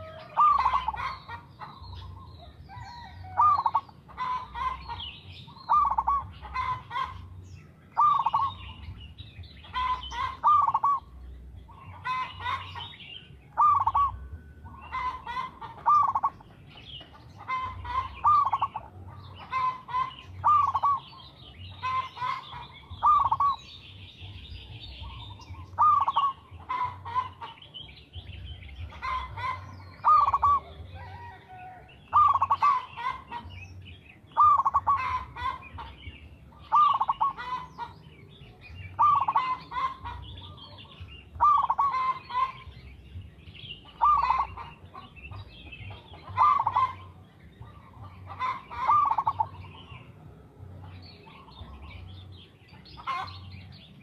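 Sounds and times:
dove cooing: 0.0s - 7.4s, 8.0s - 9.0s, 9.6s - 33.5s, 34.3s - 42.7s, 43.8s - 49.9s
small birds chirping: 0.0s - 54.0s.

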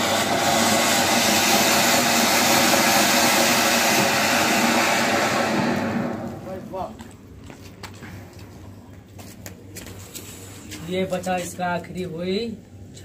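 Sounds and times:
firework spraying sparks hissing: 0.0s - 6.6s.

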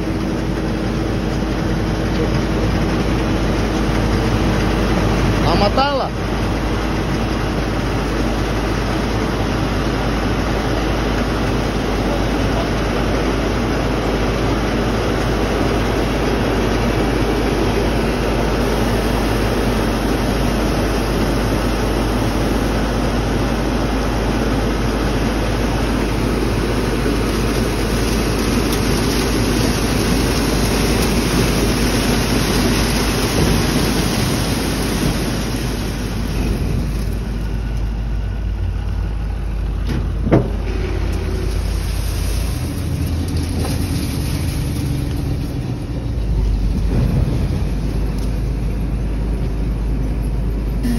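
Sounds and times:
low machine hum: 0.0s - 50.9s
corn dumping into trailer: 14.8s - 37.6s, 39.9s - 48.4s.

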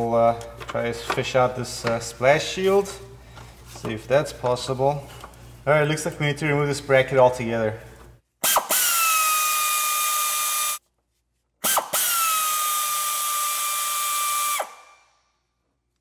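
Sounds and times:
air wrench whining: 8.4s - 10.8s, 11.6s - 15.0s.

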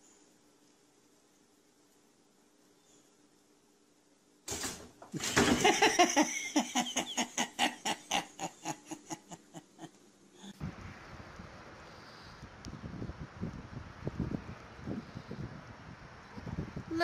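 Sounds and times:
person laughing hard: 5.2s - 10.0s.

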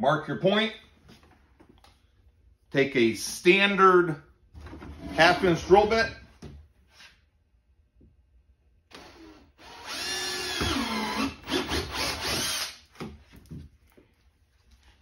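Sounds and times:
cordless drill whining: 8.9s - 12.8s.

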